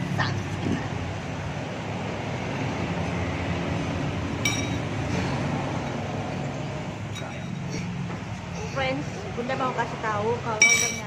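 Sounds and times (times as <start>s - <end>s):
eatery background noise: 0.0s - 11.0s
tableware clinking: 4.4s - 4.9s, 7.1s - 7.8s, 10.6s - 11.0s.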